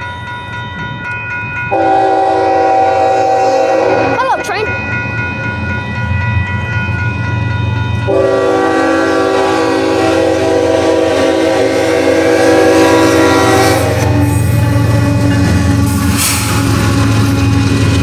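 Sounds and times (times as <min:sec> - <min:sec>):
low rumble of train: 0:00.0 - 0:18.0
locomotive horn blast: 0:01.7 - 0:04.2, 0:08.1 - 0:17.4.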